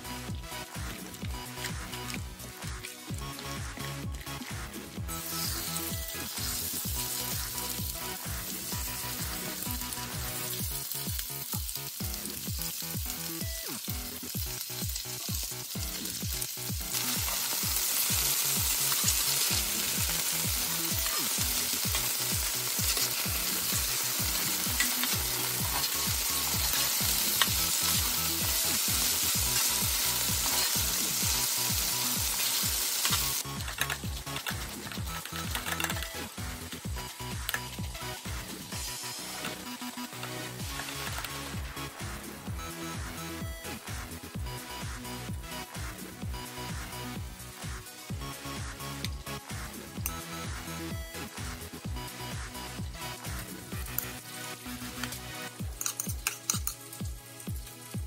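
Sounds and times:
chicken sizzling in hot oil: 0:00.2 - 0:45.0, 0:52.3 - 0:58.0
metal spatula stirring: 0:21.2 - 0:31.6, 0:32.2 - 0:36.3, 0:55.8 - 0:56.9.

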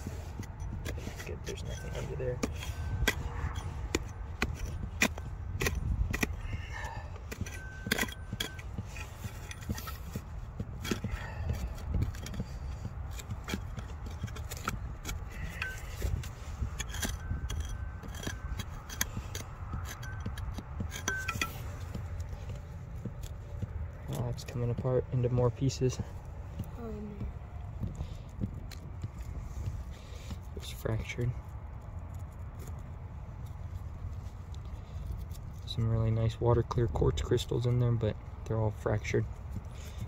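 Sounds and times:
hand tools chipping stone: 0:00.0 - 0:23.4
low steady rumble: 0:00.0 - 0:40.0.

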